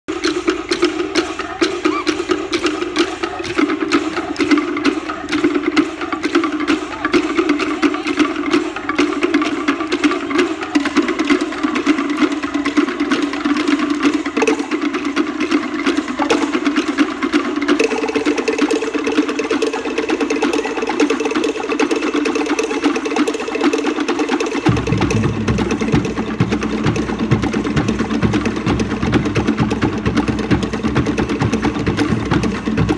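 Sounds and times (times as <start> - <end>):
wooden slit drums playing: 0.1 - 32.9.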